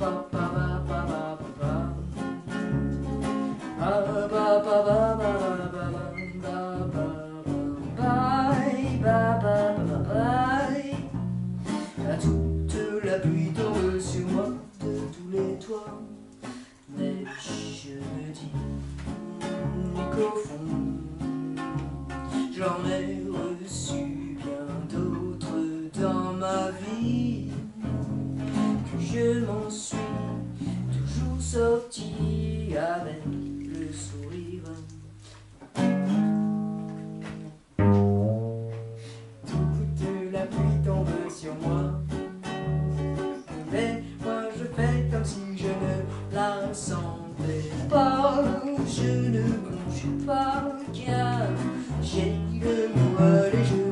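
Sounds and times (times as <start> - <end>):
person singing: 0.0 - 35.4, 38.8 - 53.9
acoustic guitars strumming chords: 0.0 - 53.9.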